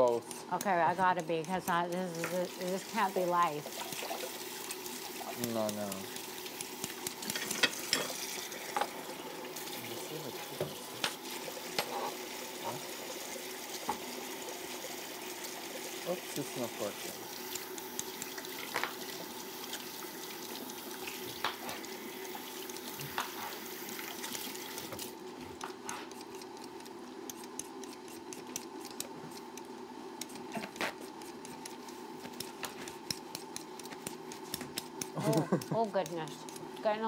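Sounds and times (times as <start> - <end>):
kitchen tap running: 0.6 - 25.1.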